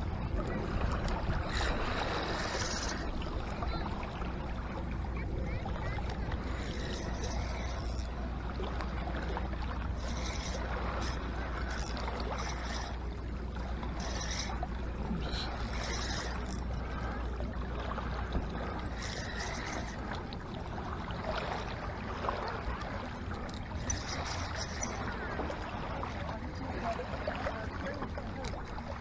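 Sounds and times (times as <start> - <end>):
waves lapping on stones: 0.0 - 4.6.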